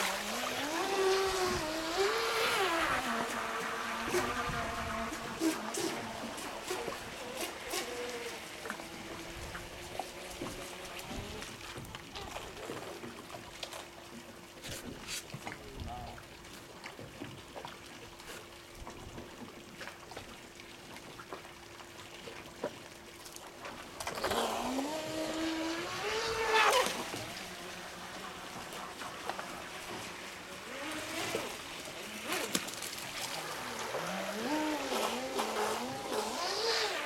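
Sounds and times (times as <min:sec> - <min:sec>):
electric motor whining: 0:00.0 - 0:09.3, 0:24.1 - 0:28.4, 0:33.3 - 0:37.0.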